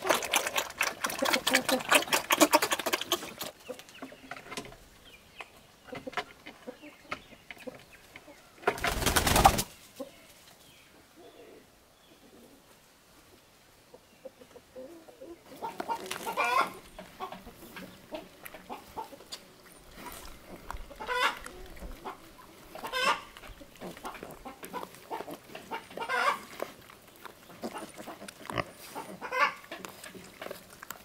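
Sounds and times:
hens clucking: 0.0 - 10.3, 13.8 - 31.0
wings flapping: 8.7 - 9.8.

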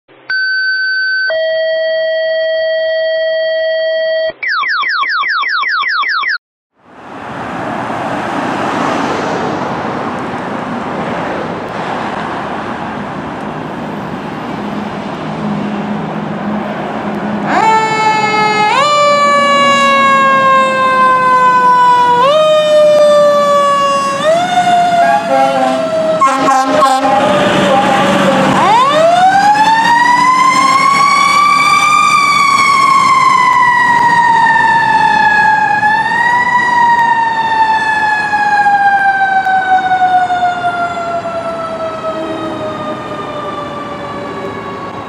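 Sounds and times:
street traffic noise: 6.8 - 45.0
fire truck siren: 11.7 - 45.0.

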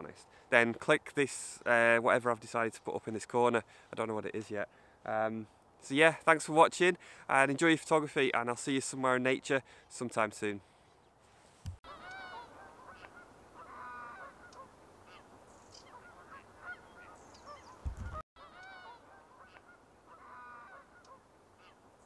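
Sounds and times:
geese honking: 11.9 - 15.2, 15.8 - 21.8.

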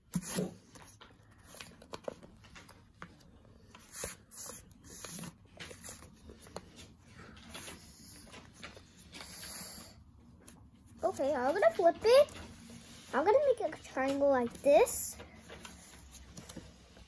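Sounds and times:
paper rustling and folding: 10.4 - 17.0.

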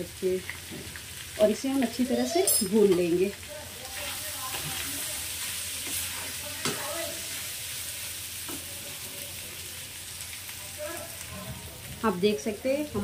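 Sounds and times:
potatoes sizzling in oil: 0.0 - 13.0.

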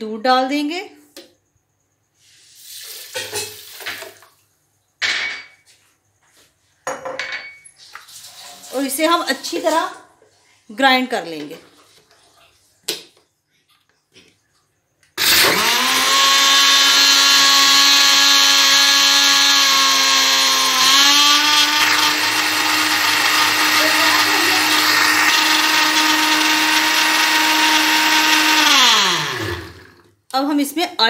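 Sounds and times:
blender grinding: 15.2 - 30.2.

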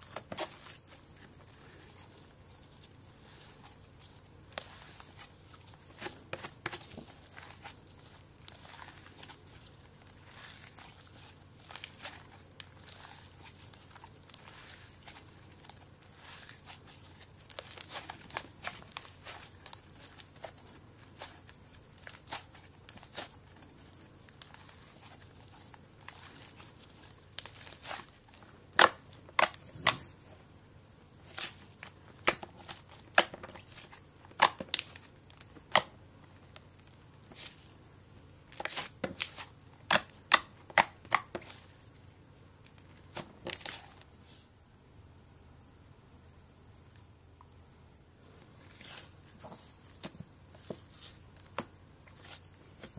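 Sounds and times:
wet crackles and pops of slime: 0.0 - 30.0, 31.2 - 37.7, 38.4 - 41.8.

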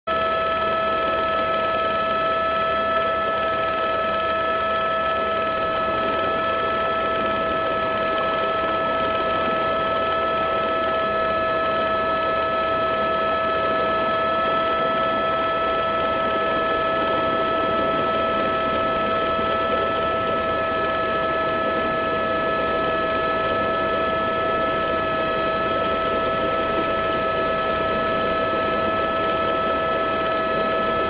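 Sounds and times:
high-pitched turbine whine: 0.1 - 31.0.

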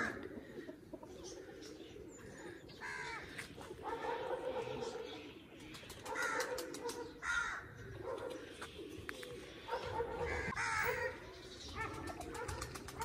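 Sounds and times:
crows cawing: 0.0 - 0.7, 2.8 - 3.5, 6.1 - 7.8, 10.2 - 11.2
other birds calling: 0.0 - 13.0.

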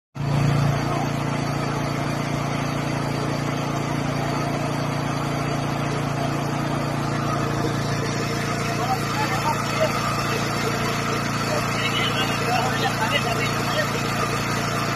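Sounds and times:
engine humming: 0.2 - 14.9.

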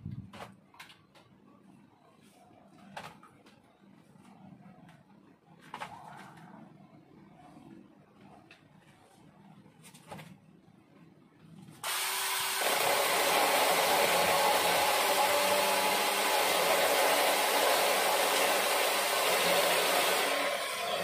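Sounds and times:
mini chainsaw cutting wood: 11.8 - 21.0.

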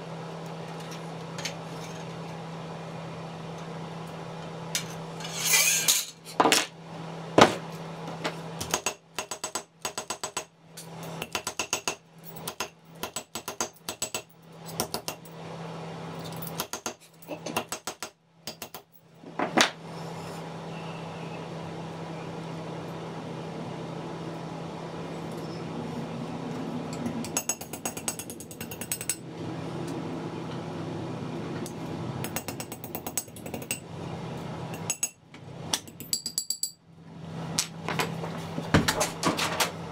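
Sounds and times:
steady low hum: 18.4 - 39.9.

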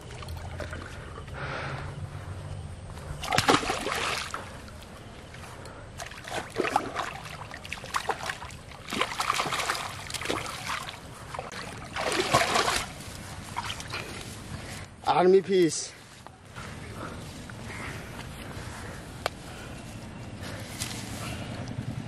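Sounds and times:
fish splashing in water: 3.2 - 4.6, 6.0 - 13.0.

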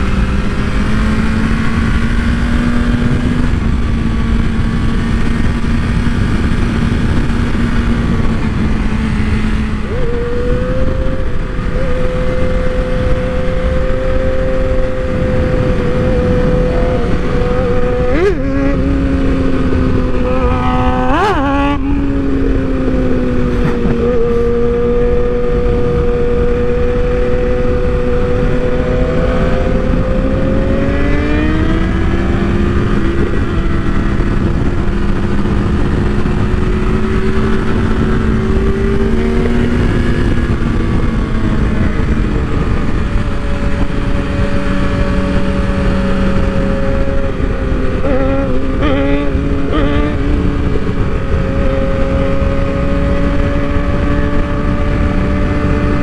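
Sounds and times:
motorcycle engine: 0.0 - 56.0
wind rush on microphone: 0.0 - 56.0.

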